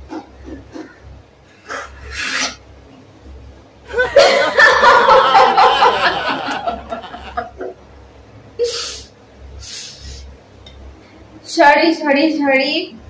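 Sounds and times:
woman laughing muffled: 0:03.9 - 0:07.7.

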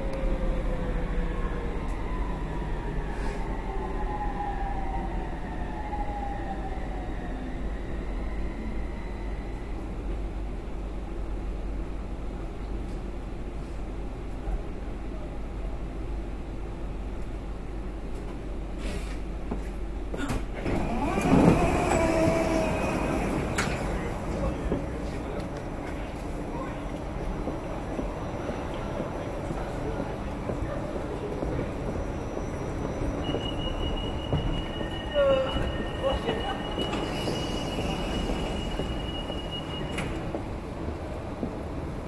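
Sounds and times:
metro train rumbling: 0:00.0 - 0:42.0
train high whine: 0:27.7 - 0:40.5.

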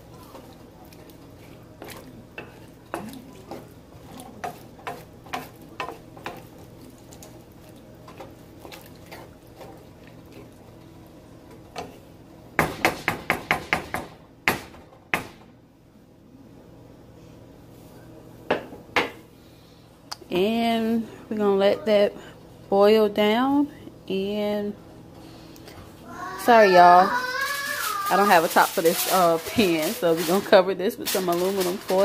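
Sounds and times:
utensil stirring in a pan: 0:00.0 - 0:13.9, 0:25.2 - 0:32.0.

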